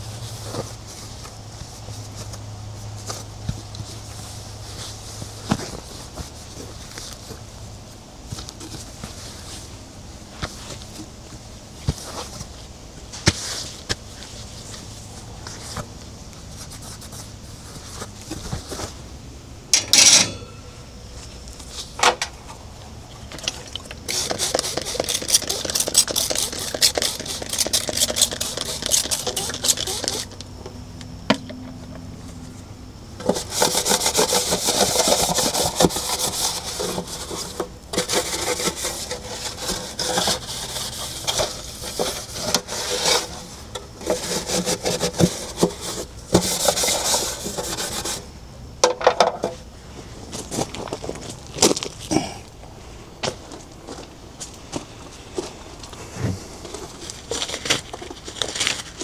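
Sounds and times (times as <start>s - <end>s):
scrubbing on hard surface: 24.1s - 30.3s.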